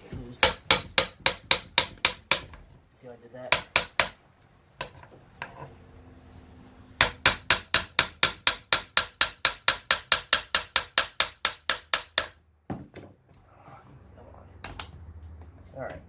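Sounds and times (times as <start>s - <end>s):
hammer tapping metal shaft: 0.4s - 2.6s, 3.5s - 5.6s, 7.0s - 12.4s.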